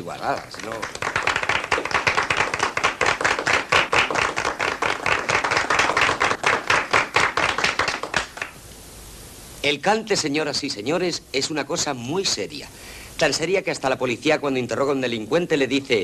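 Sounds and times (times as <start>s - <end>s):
people applauding: 0.0s - 8.6s.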